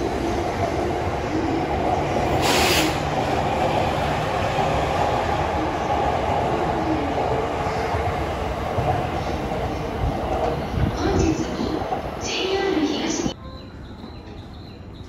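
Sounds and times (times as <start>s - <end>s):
train wheels rumbling on rail: 0.0s - 13.4s
brief hiss: 2.4s - 3.0s.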